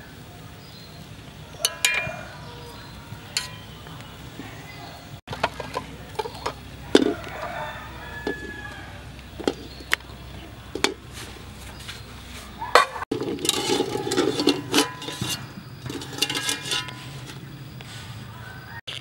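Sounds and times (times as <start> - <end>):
eggs clicking against metal pot: 1.6 - 2.1, 12.8 - 17.5
wire skimmer scraping metal pot: 1.6 - 3.8, 5.3 - 18.1.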